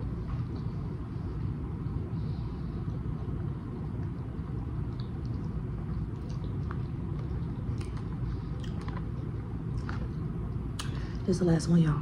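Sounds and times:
low background rumble: 0.0s - 12.0s
mouth clicks of chewing: 4.8s - 9.1s.

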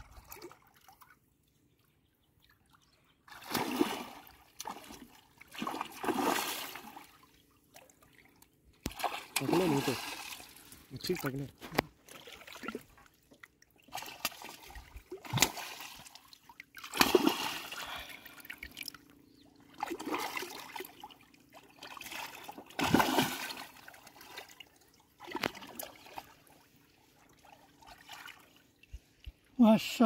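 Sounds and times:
fish splashing in water: 3.3s - 7.0s, 13.9s - 18.9s, 19.8s - 24.5s.

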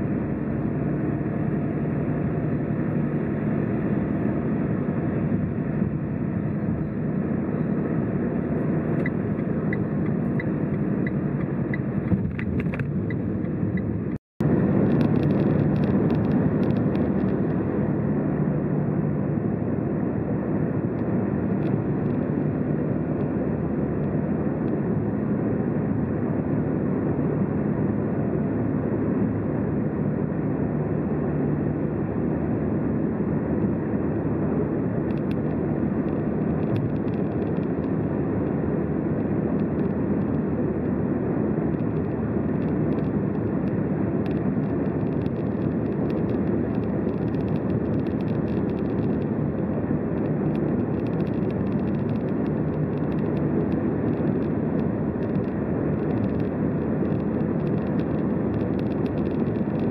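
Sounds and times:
car tyre and engine noise: 0.0s - 59.9s.

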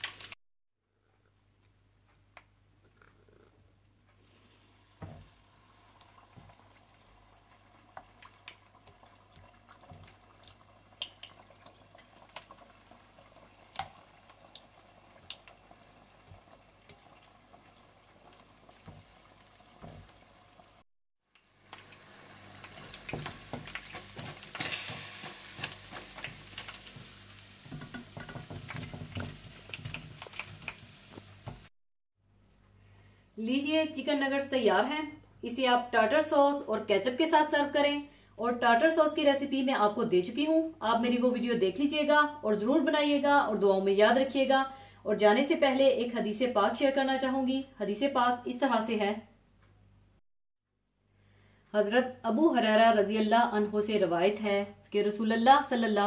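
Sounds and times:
chicken deep-frying in oil: 0.0s - 0.4s, 4.7s - 31.7s.

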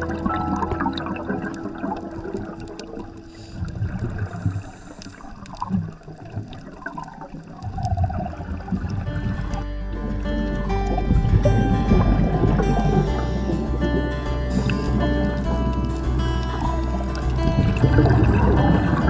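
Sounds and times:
background music notes: 0.0s - 4.2s, 8.0s - 19.0s
underwater bubbling and gurgling: 0.0s - 19.0s.

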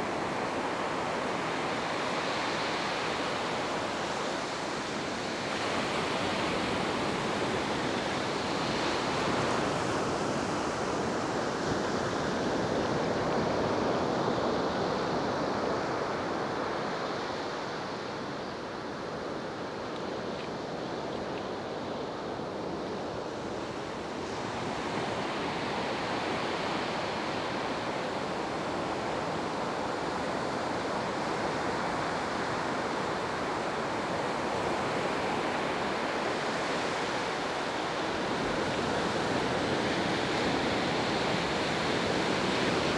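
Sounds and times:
wind: 0.0s - 42.9s.

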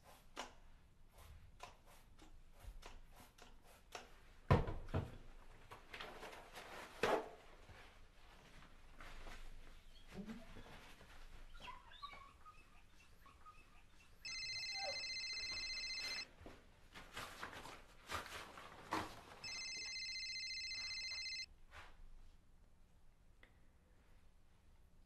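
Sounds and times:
phone ringtone trilling: 14.2s - 16.3s, 19.4s - 21.5s.

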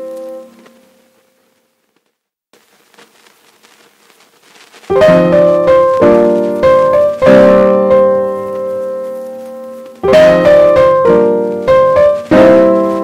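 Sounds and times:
piano chords: 0.0s - 1.2s, 4.9s - 13.0s.

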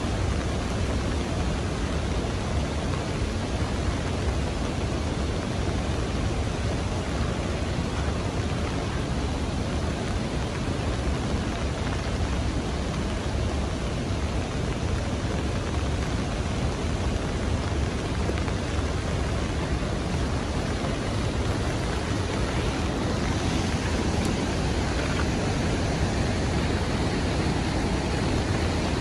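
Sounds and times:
heavy rain: 0.0s - 29.0s.

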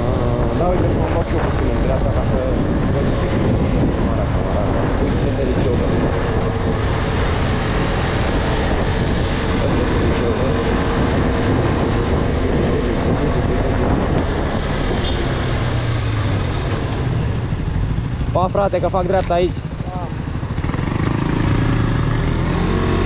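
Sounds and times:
wind rushing on microphone: 0.0s - 23.0s
motorcycle engine running: 17.5s - 23.0s.

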